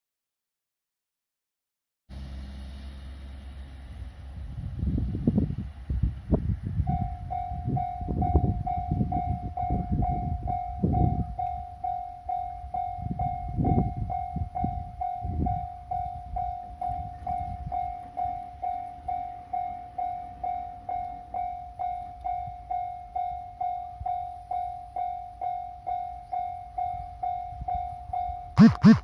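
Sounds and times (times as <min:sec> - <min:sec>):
gusty low rumble: 0:03.2 - 0:11.4
level-crossing warning bell ringing: 0:06.8 - 0:28.6.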